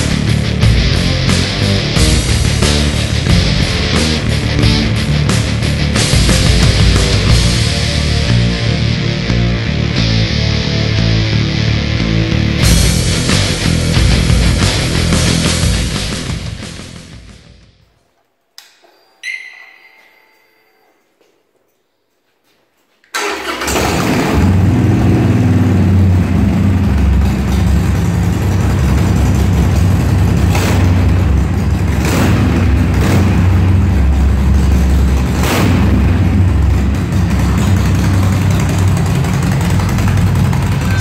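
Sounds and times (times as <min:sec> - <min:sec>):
motorcycle engine idling: 0:00.0 - 0:09.0, 0:23.2 - 0:41.0
exhaust cracks: 0:23.1 - 0:41.0.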